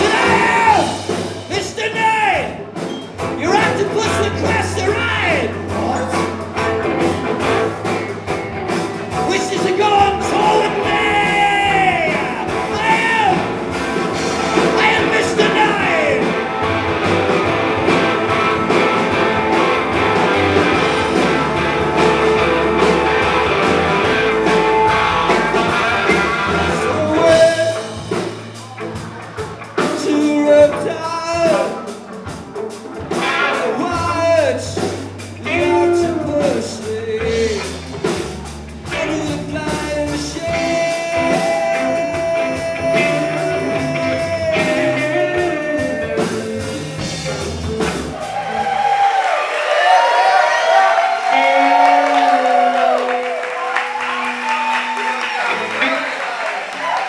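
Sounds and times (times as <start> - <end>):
person singing: 0.0 - 2.4, 9.1 - 16.4, 24.0 - 32.0, 33.3 - 37.9, 38.8 - 48.0, 51.3 - 54.7
live rock band playing: 0.0 - 57.0.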